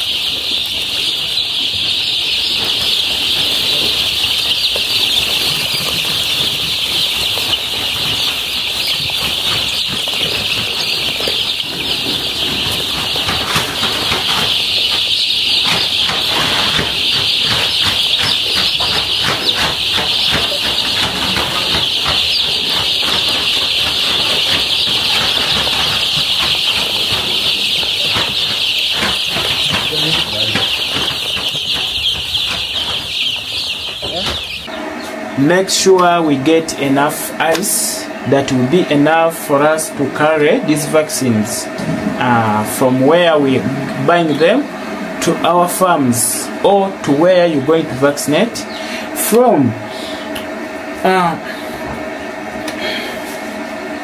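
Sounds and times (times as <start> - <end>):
quick rustling taps: 0.0 - 34.7
chicks peeping: 0.0 - 54.0.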